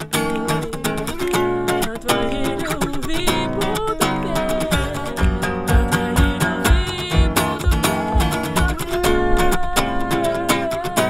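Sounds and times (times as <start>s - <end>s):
acoustic guitar strumming: 0.0s - 11.0s
woman singing: 0.3s - 11.0s
low regular beat: 5.2s - 8.8s.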